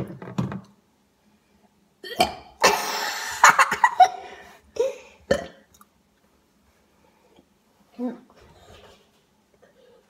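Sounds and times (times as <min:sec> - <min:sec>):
boys laughing: 0:02.9 - 0:04.3.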